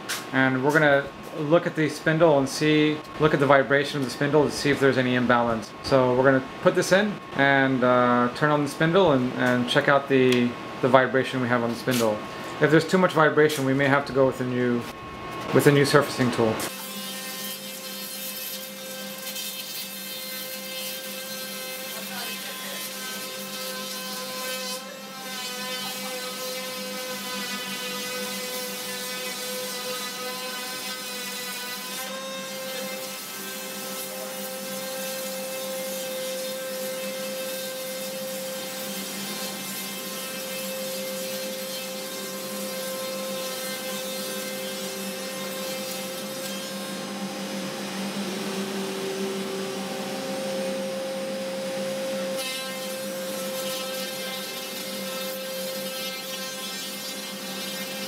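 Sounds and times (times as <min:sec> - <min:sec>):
cutter shaving wood: 0:16.7 - 0:58.0
router spindle whine: 0:46.8 - 0:52.4.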